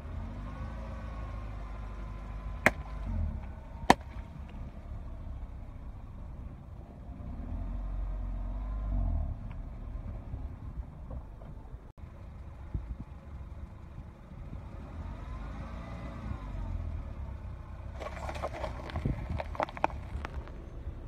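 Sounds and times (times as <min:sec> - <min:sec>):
car engine rumble: 0:00.0 - 0:21.0
water balloons popping: 0:02.6 - 0:03.1, 0:03.9 - 0:04.3.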